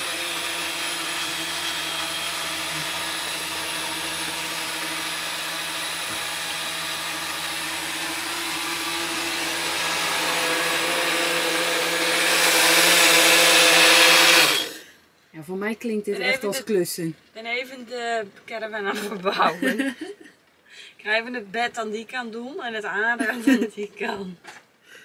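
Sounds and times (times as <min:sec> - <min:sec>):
blender motor whine: 0:00.0 - 0:15.0.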